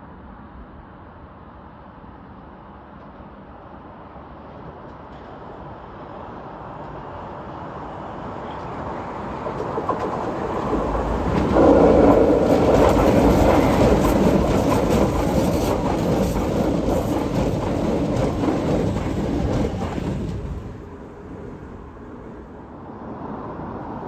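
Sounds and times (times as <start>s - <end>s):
metro train wheels rumbling on rail: 0.0s - 24.0s.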